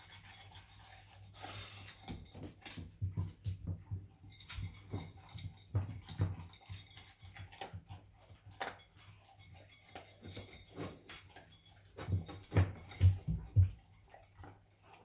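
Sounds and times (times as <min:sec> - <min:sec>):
puppy crunching kibble: 0:00.0 - 0:15.0
kibble knocking metal bowl: 0:01.9 - 0:13.8.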